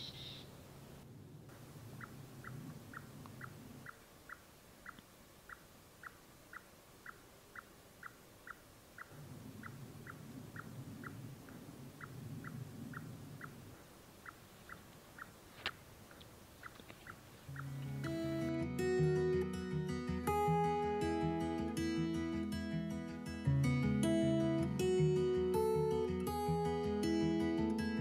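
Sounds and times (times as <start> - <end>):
animal chip calls: 1.9 - 18.3
faint low rumble: 9.0 - 18.0.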